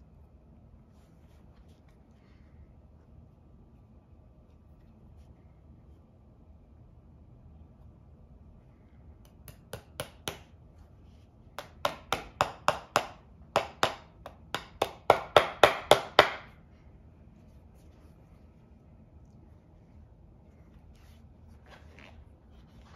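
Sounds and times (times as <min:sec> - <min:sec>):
hammer tapping on leather: 0:11.6 - 0:16.4.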